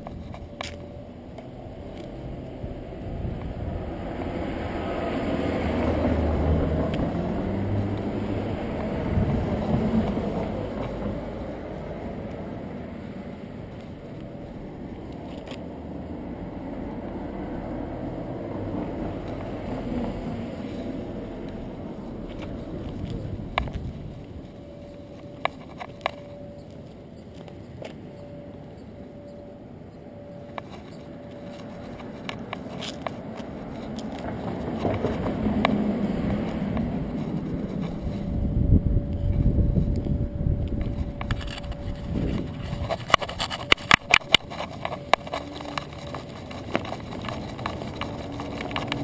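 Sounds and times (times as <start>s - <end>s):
harness mount clicks and scrapes: 0.0s - 2.2s, 13.0s - 15.6s, 22.2s - 28.0s, 30.5s - 38.3s, 40.7s - 49.0s
camera rubbing and jostling: 0.0s - 15.8s, 18.9s - 29.3s, 30.2s - 49.0s
street traffic rumble: 0.0s - 49.0s.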